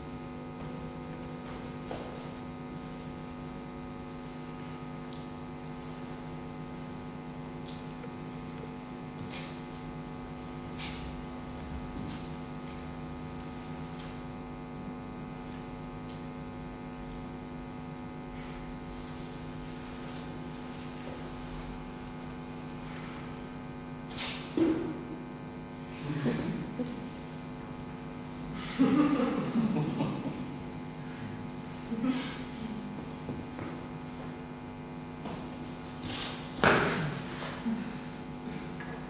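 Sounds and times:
electrical mains hum: 0:00.0 - 0:39.0.

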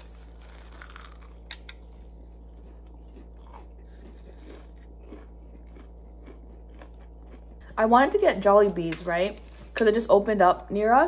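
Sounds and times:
crisp crunching bite: 0:00.0 - 0:07.6
chewing: 0:00.0 - 0:07.8.

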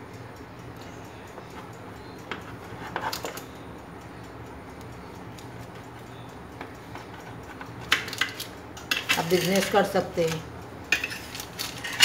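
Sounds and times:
steady low hum: 0:00.0 - 0:12.0
knife cutting crisp cookies: 0:07.0 - 0:10.4, 0:11.0 - 0:12.0.

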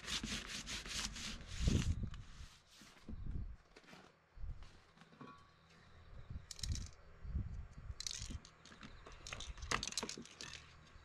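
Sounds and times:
cans clicking and rattling: 0:08.0 - 0:10.8.

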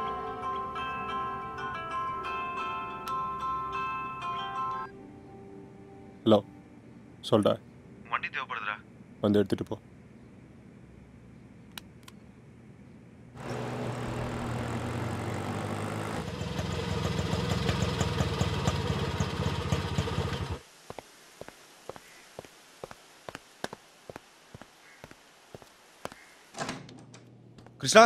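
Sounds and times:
auto-rickshaw engine puttering: 0:13.4 - 0:20.6
footsteps on tile: 0:20.9 - 0:26.3.

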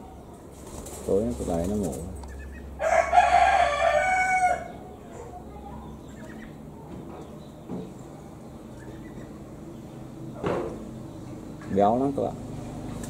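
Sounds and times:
rooster crowing: 0:02.8 - 0:04.8.

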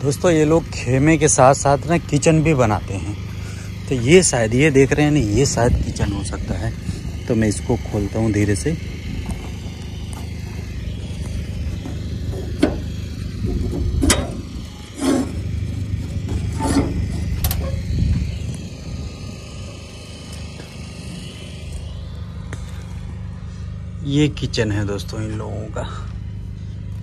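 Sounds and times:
low rumble: 0:02.8 - 0:24.6
metal door scraping and clanking: 0:11.9 - 0:18.0.

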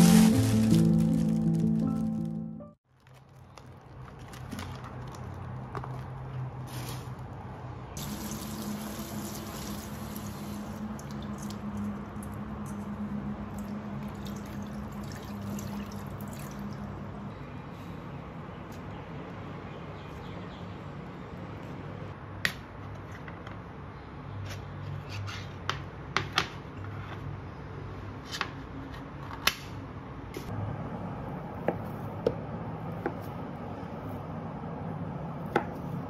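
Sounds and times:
water sloshing in a bowl: 0:13.5 - 0:17.0.

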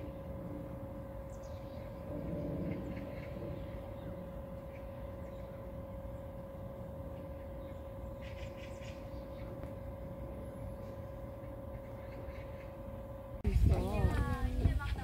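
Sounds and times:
low rumble: 0:00.0 - 0:08.0
mechanical hum: 0:00.0 - 0:15.0.

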